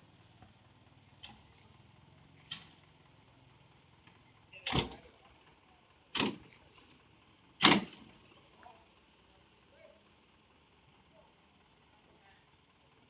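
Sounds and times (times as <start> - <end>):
diesel engine humming: 0.0 - 13.0
loud sharp bangs from truck: 4.6 - 5.0, 6.1 - 6.5, 7.6 - 8.1.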